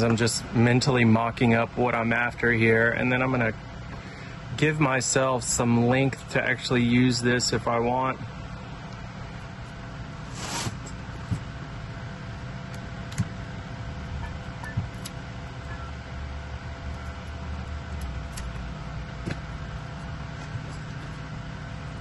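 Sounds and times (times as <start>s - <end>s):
low machine hum: 0.0s - 22.0s
rustle on table: 10.3s - 10.9s.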